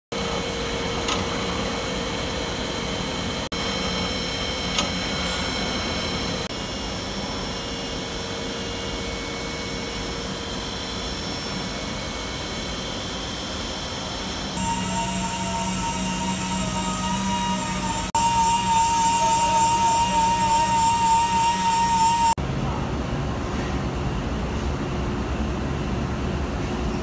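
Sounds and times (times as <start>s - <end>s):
high whining tones: 14.6s - 22.4s
milling machine hum: 14.6s - 22.4s.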